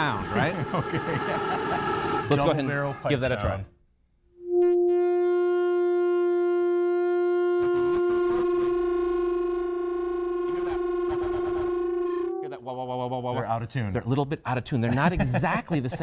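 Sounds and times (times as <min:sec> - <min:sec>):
singing pipes humming: 0:04.4 - 0:13.2.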